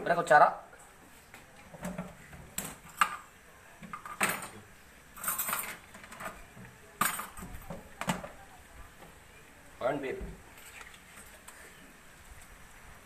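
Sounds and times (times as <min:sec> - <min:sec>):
clicks and knocks of kitchen items: 0:03.8 - 0:04.6, 0:05.2 - 0:08.4.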